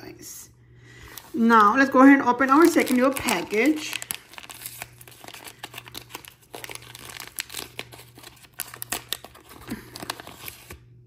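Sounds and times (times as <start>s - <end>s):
paper wrapper crinkling and tearing: 2.4s - 10.8s.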